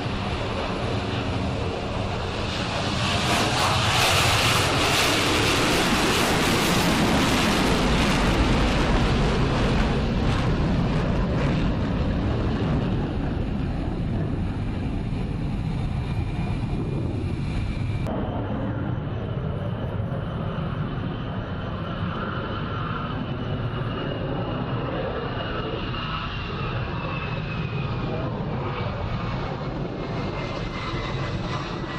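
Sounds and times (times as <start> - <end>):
jet engines roaring: 0.0 - 31.9.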